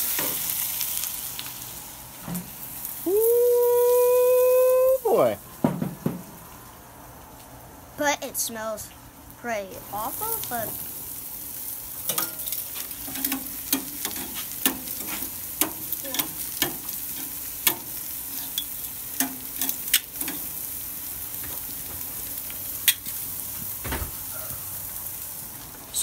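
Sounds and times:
vegetables sizzling on a grill: 0.0s - 26.0s
tongs clicking on metal grates: 12.0s - 20.6s, 22.8s - 23.2s.

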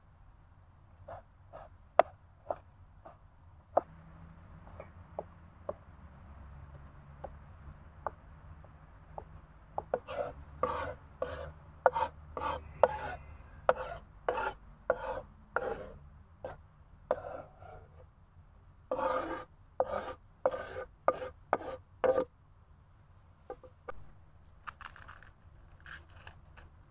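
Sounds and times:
knife scraping on wooden board: 9.9s - 18.0s, 18.9s - 22.3s.

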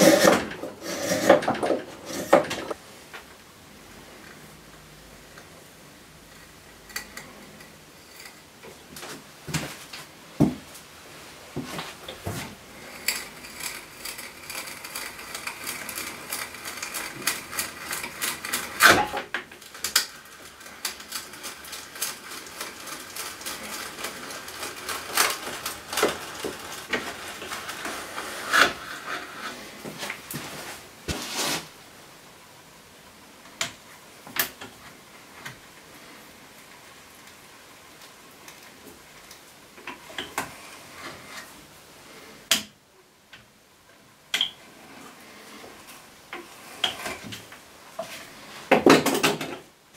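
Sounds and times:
hand brace drilling wood: 0.0s - 2.8s.

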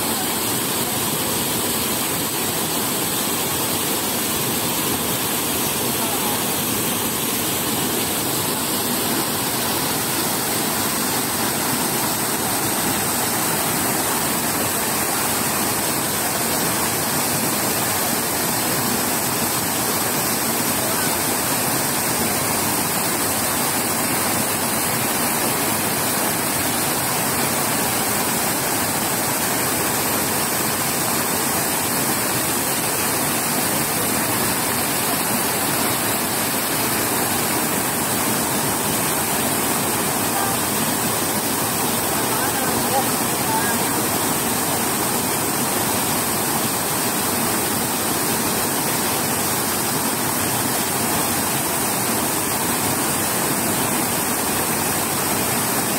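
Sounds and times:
fountain water splashing: 0.0s - 55.9s.

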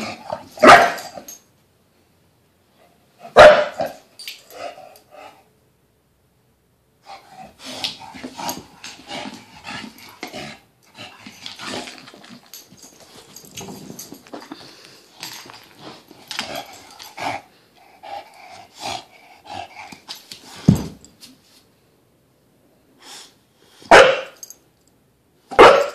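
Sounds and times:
dog vocal and breathing noises: 13.0s - 20.6s.

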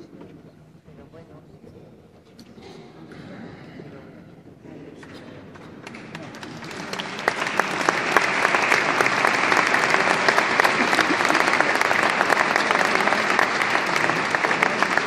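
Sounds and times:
audience applauding: 5.8s - 15.0s.

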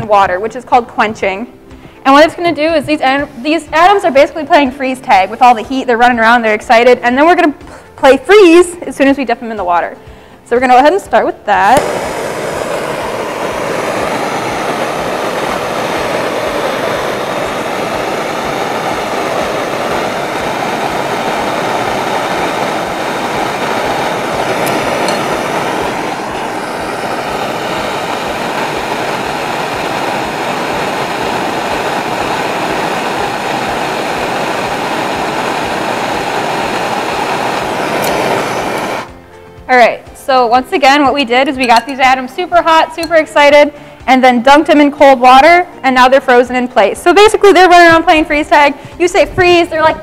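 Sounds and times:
blowtorch hissing: 11.6s - 39.3s, 40.8s - 43.8s.

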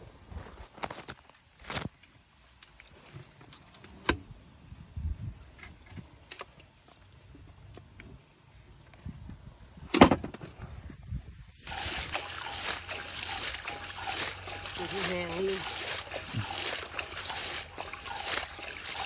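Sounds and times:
muddy water splashing: 11.5s - 19.0s
fish slapping in container: 11.6s - 19.0s.

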